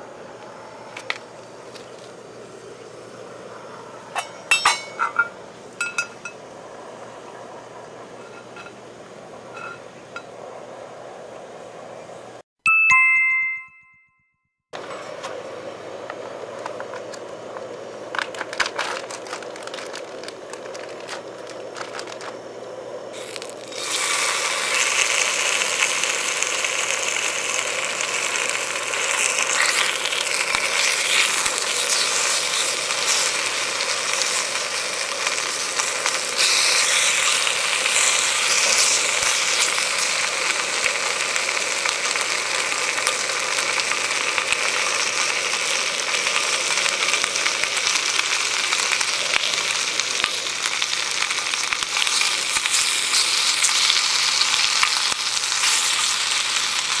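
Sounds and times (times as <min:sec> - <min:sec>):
gas burner hissing: 0:00.0 - 0:12.4, 0:14.8 - 0:57.0
bacon sizzling in a pan: 0:23.1 - 0:57.0.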